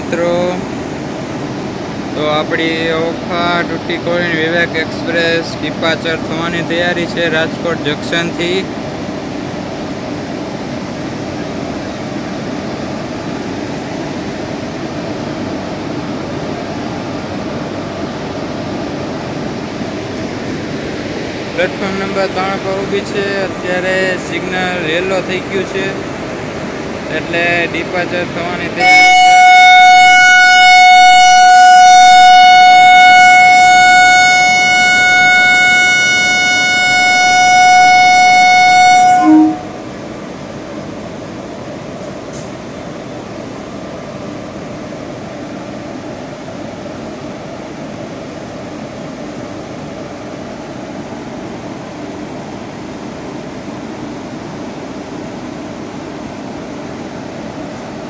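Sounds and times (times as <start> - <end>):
train horn long note: 28.5 - 40.0.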